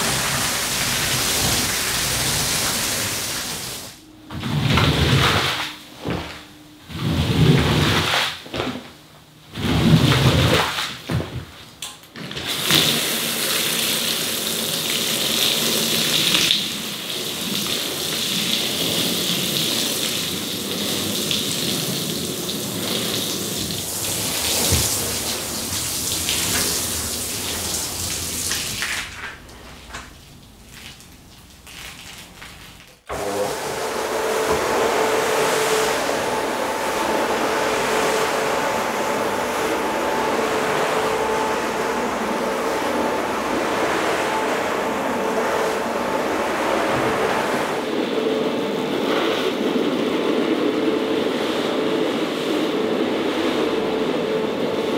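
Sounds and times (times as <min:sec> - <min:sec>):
squeegee pushing water: 0:00.0 - 0:08.9, 0:12.2 - 0:29.4
water pouring from watering can: 0:12.5 - 0:29.3.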